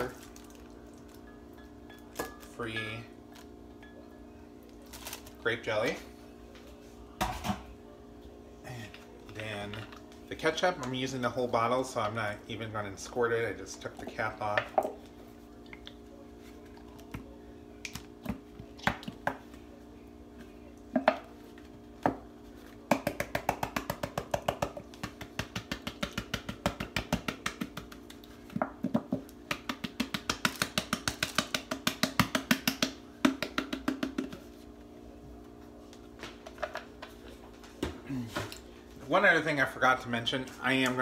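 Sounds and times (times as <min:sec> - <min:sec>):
steady low hum: 0:00.0 - 0:41.0
hand slapping plastic bottle: 0:22.9 - 0:34.4.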